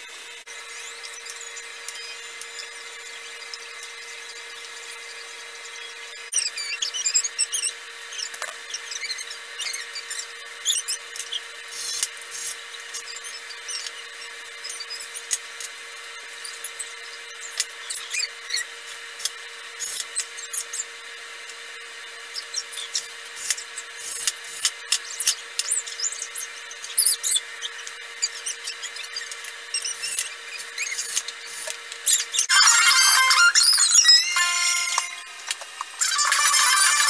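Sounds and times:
hinge hardware clicks and squeaks: 0:22.3 - 0:35.2.

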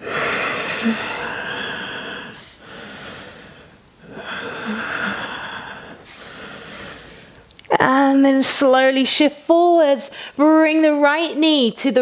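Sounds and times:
woman breathing deeply: 0:00.0 - 0:07.4.

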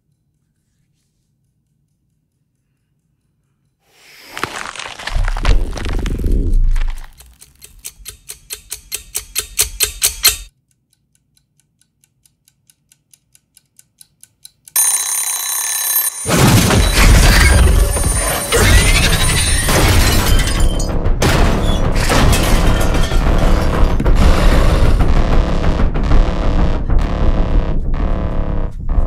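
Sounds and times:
kitchen timer ticking: 0:01.5 - 0:03.8, 0:07.2 - 0:16.2
timer bell ringing: 0:14.8 - 0:16.4
loud crashing rumbling din: 0:16.4 - 0:29.0.

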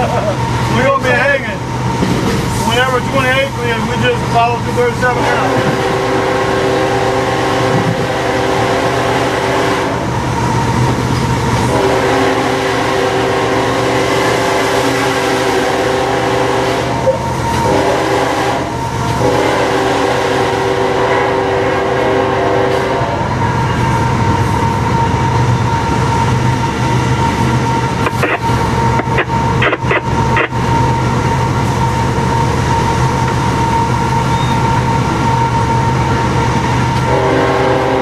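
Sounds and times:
diesel locomotive engine running: 0:00.0 - 0:38.0.

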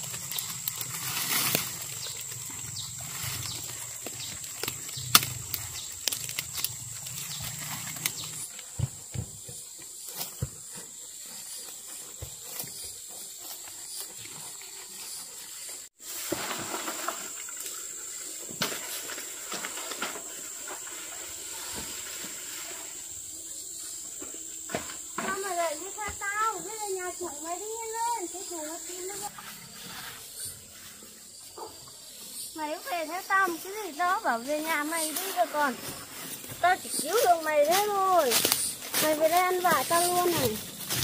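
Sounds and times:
rustling in brush: 0:00.0 - 0:08.5, 0:28.8 - 0:41.0.

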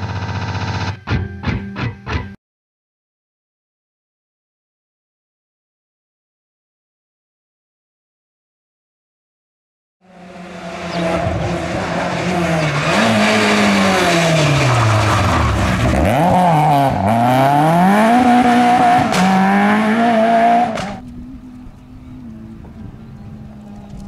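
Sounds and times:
rally car engine revving: 0:10.0 - 0:24.0.

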